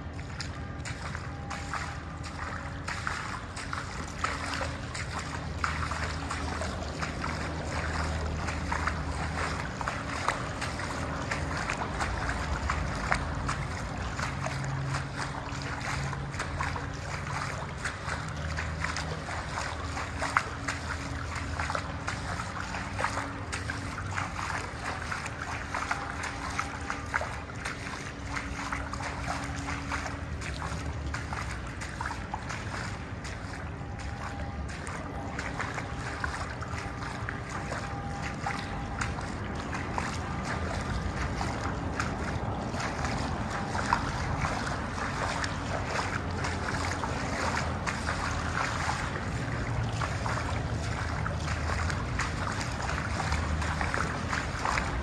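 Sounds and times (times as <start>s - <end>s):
low rumble and hiss in tunnel: 0.0s - 55.0s.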